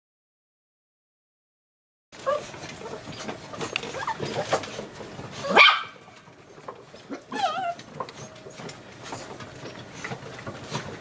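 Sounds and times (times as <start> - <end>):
puppy whine: 2.2 - 6.0, 7.0 - 10.9
puppy yelp: 2.2 - 6.1, 7.1 - 8.6
puppies whimpering and yipping: 2.2 - 10.9.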